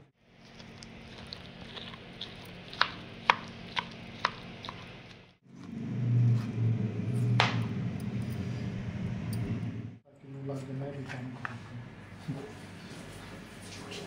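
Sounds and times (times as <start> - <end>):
steady low hum: 0.0 - 13.6
knife chopping on cutting board: 1.7 - 5.0.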